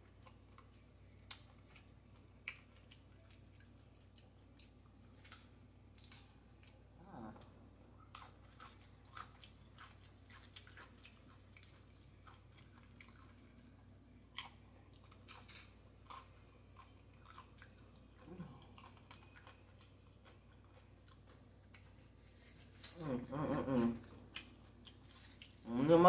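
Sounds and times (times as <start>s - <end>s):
faint chewing clicks: 0.0s - 22.1s, 24.1s - 25.6s.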